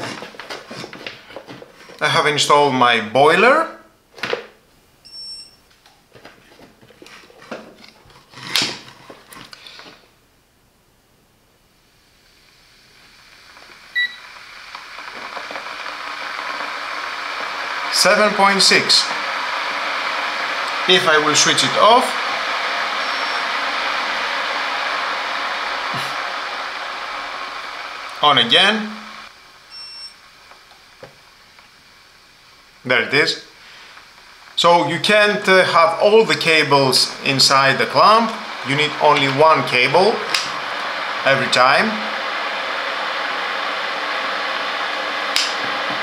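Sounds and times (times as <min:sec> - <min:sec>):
kettle heating water hiss: 0:11.4 - 0:46.0
short high electronic beep: 0:29.7 - 0:30.1.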